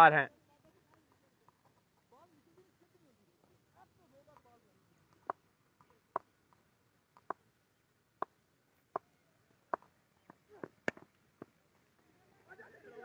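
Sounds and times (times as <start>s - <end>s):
faint sharp clicks: 4.2s - 7.4s.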